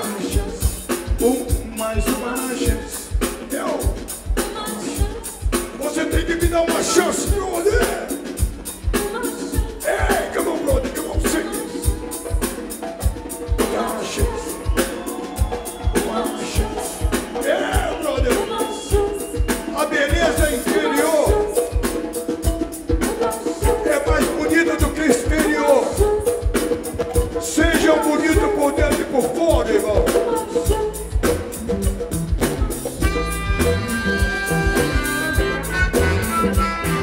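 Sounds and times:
djembe hand drum: 0.0s - 37.0s
man singing into microphone: 1.2s - 3.9s, 5.8s - 8.2s, 9.8s - 11.7s, 16.0s - 21.6s, 23.6s - 26.0s, 27.4s - 30.3s.

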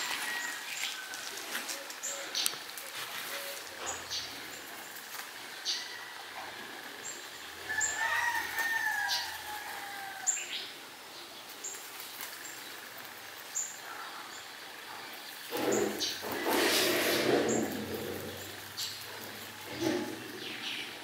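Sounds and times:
rooster crowing: 0.0s - 2.2s, 5.5s - 10.6s
rabbit chewing leaves: 0.0s - 10.3s, 11.2s - 21.0s.

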